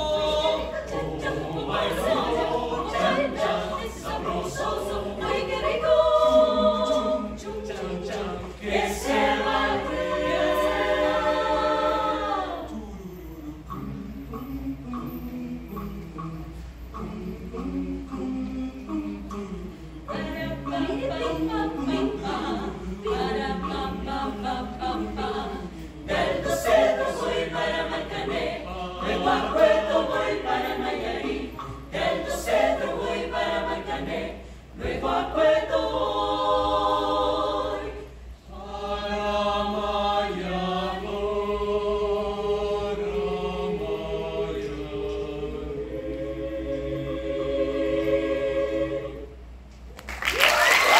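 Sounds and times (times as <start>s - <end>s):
mixed choir singing a cappella: 0.0s - 49.7s.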